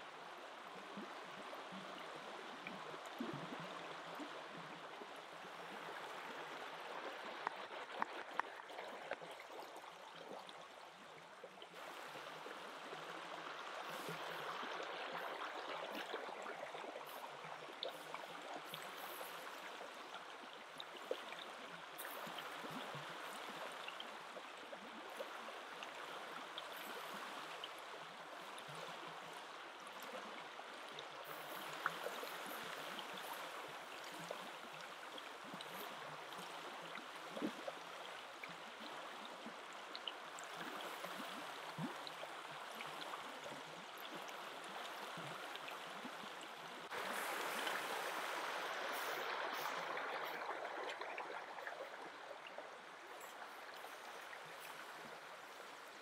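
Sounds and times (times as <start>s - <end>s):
river flowing: 0.0s - 56.0s.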